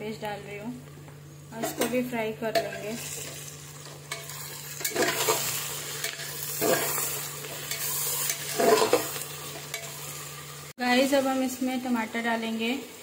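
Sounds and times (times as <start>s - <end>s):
onions sizzling in hot oil: 1.4s - 13.0s
metal spatula scraping pot: 4.1s - 10.2s.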